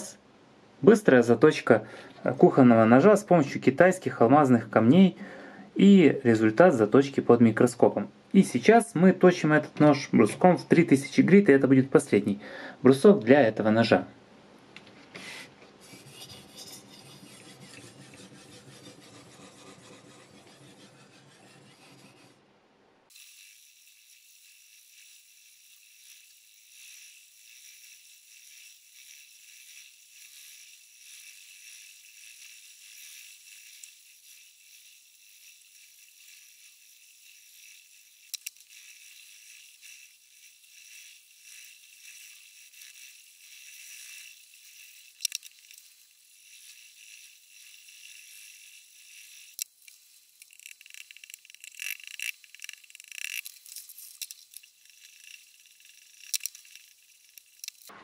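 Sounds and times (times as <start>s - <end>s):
knife scraping on sharpening stone: 15.8s - 22.3s.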